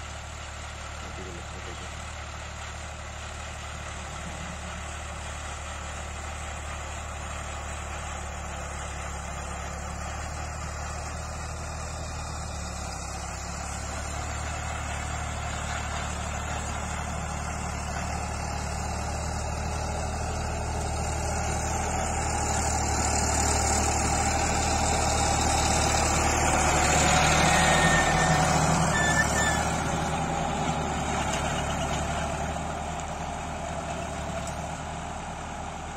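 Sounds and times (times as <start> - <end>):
tractor engine pulling a tiller: 0.0 - 35.9.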